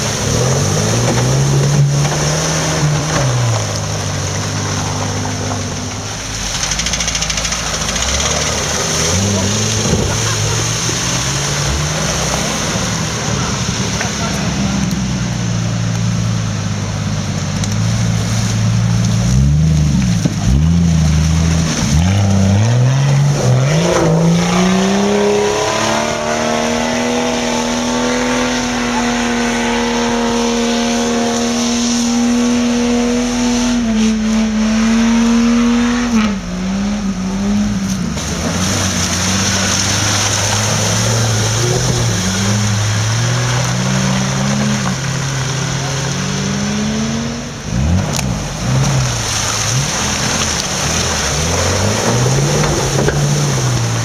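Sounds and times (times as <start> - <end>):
engine revving up and down: 6.3 - 15.0, 19.2 - 54.0
engine revving high: 19.3 - 54.0.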